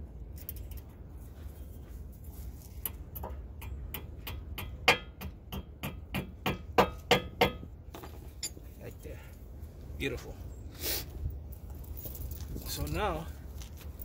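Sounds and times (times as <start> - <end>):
hammer striking metal pin: 2.8 - 7.7.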